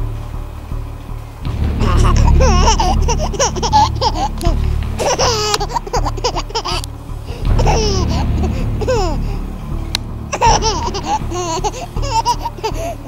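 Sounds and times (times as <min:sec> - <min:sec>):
low steady rumble: 0:00.0 - 0:13.0
high-pitched laughter: 0:01.8 - 0:09.3, 0:10.3 - 0:13.0.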